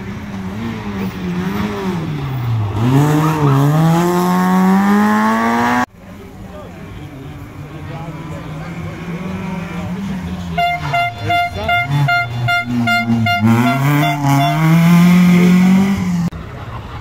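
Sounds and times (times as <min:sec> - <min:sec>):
rally car engine revving: 0:00.0 - 0:05.9, 0:06.9 - 0:16.4
horn short blasts: 0:10.5 - 0:15.8.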